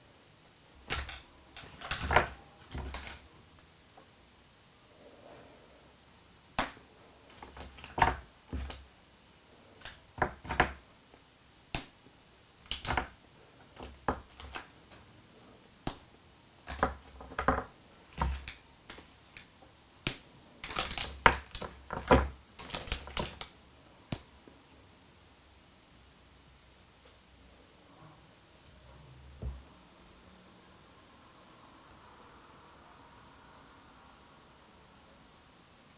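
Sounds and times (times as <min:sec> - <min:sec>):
chocolate snapping: 0:06.6 - 0:08.8, 0:11.7 - 0:12.0, 0:12.6 - 0:14.7, 0:15.8 - 0:16.1, 0:16.7 - 0:23.5, 0:24.1 - 0:24.3.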